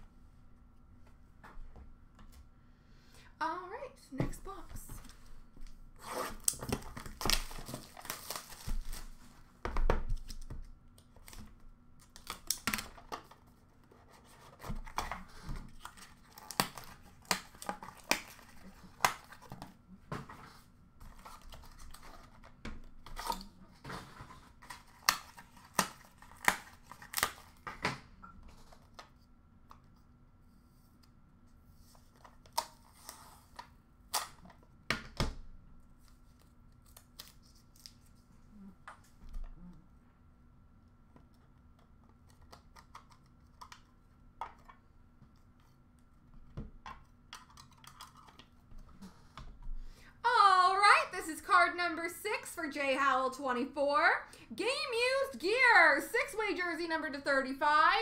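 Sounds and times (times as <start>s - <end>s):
packaging tearing and crinkling: 6.3s - 9.3s, 11.2s - 13.4s, 15.7s - 19.6s, 24.6s - 27.7s, 36.3s - 38.1s.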